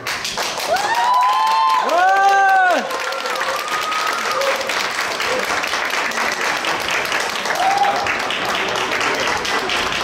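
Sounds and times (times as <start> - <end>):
audience applauding: 0.0 - 10.0
audience cheering: 0.6 - 5.7, 7.3 - 9.0.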